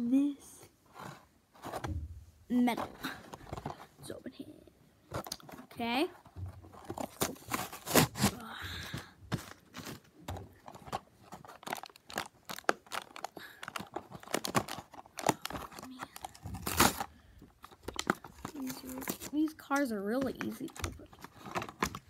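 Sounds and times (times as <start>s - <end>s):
plastic packaging crinkling: 9.3s - 22.0s.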